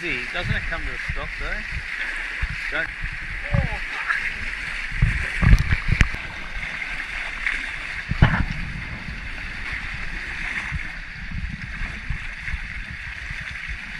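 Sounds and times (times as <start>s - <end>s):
water rushing past hulls: 0.0s - 13.9s
low thumps: 4.8s - 6.4s, 8.0s - 13.0s.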